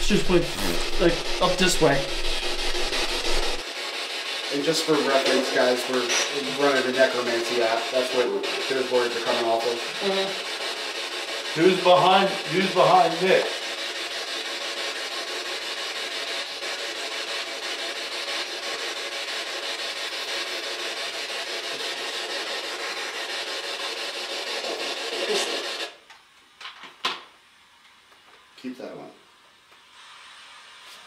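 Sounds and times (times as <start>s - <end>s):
rasping static: 0.0s - 3.6s, 4.6s - 13.6s.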